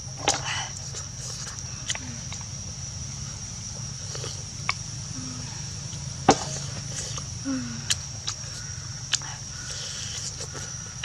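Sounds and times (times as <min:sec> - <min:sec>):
low hum: 0:00.0 - 0:09.7
steady high whine: 0:00.0 - 0:11.0
mouth clicks and smacks eating: 0:00.2 - 0:02.5, 0:06.7 - 0:11.0.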